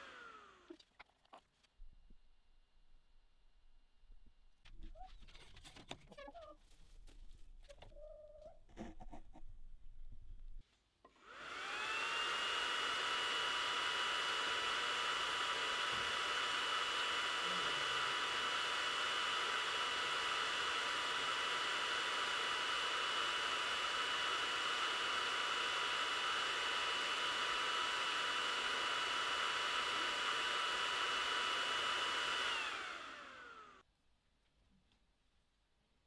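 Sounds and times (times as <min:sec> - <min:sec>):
laser engraver fan whirring: 0:11.2 - 0:33.8.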